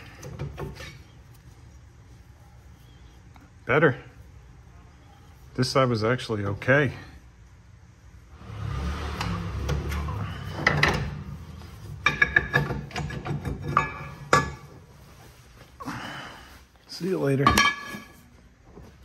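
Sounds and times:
metal clanks and knocks: 9.2s - 14.8s, 17.4s - 18.3s.

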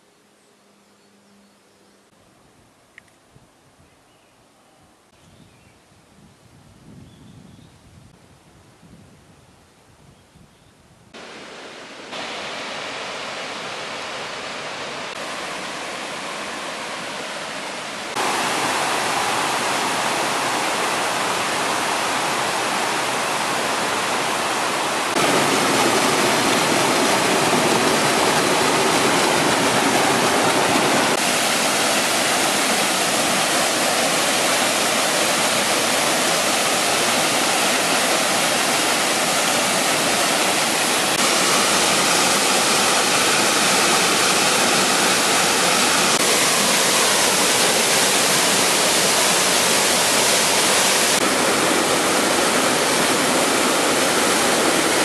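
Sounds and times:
water rushing over rocks: 11.2s - 55.0s.

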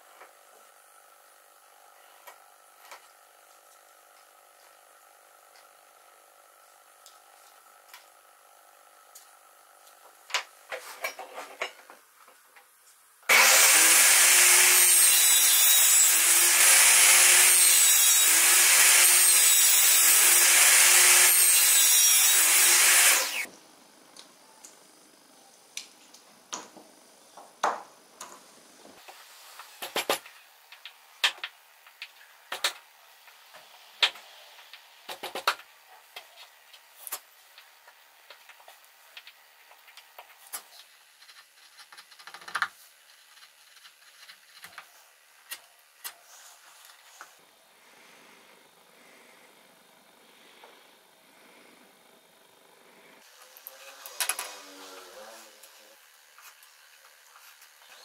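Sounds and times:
table saw cutting wood: 13.3s - 23.5s, 53.2s - 56.0s.

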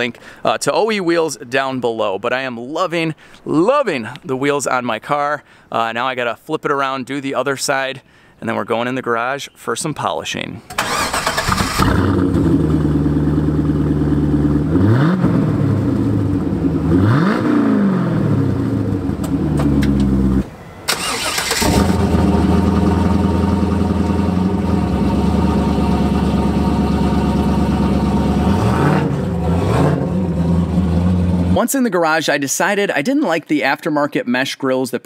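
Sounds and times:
car engine starting and idling: 10.7s - 31.6s
car engine idling and revving: 10.8s - 31.6s.

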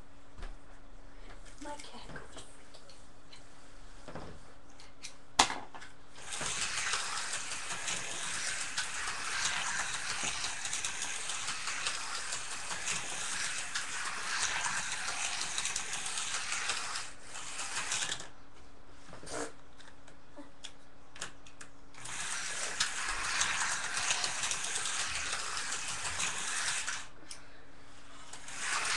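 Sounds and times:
slot car whirring on track: 6.2s - 18.3s, 22.0s - 27.1s, 28.1s - 28.9s.

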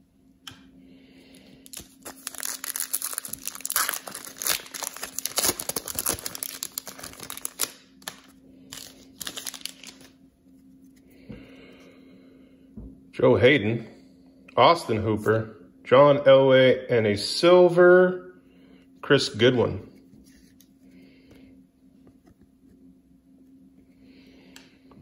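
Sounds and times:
wrapper crinkling: 1.6s - 10.2s.

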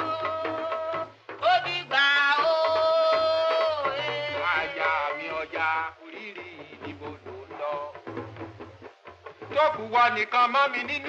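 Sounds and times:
high voice singing: 0.0s - 8.0s.

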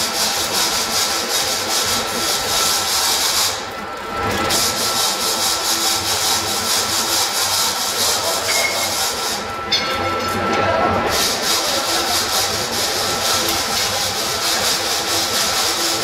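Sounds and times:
rasping hissing machine noise: 11.1s - 16.0s.

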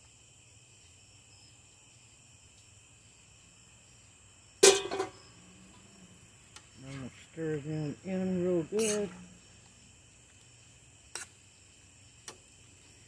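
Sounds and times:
crickets chirping: 0.0s - 13.0s
loud metallic clank: 4.6s - 5.3s.

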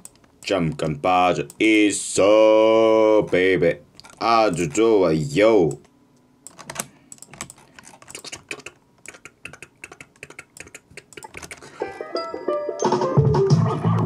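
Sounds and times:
typing on computer keyboard: 6.5s - 11.7s.

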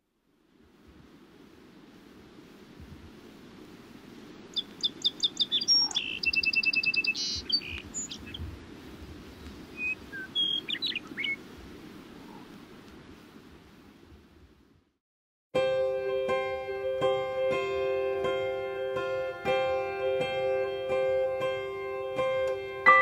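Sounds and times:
faint low background noise: 0.0s - 15.0s, 15.6s - 23.0s
small birds chirping and trilling: 4.5s - 8.5s, 9.7s - 11.5s.

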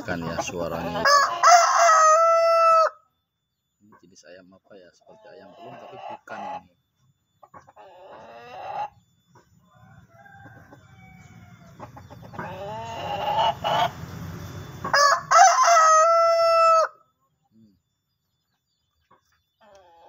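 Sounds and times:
rooster clucking: 0.0s - 3.0s, 5.1s - 6.8s, 7.4s - 17.0s
rooster crowing: 0.6s - 3.0s, 9.6s - 17.0s.

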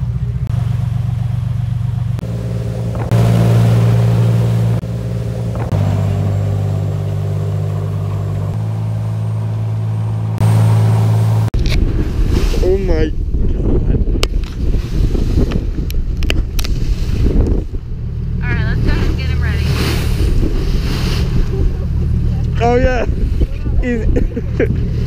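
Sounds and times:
boat engine droning: 0.0s - 12.2s, 17.3s - 25.0s
wind and wake water hiss: 18.6s - 22.3s.

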